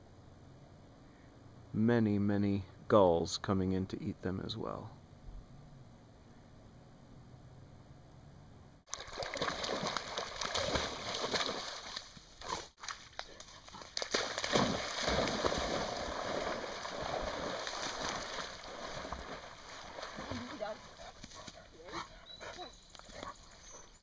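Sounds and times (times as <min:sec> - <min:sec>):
waves splashing against shore: 0:14.2 - 0:20.9.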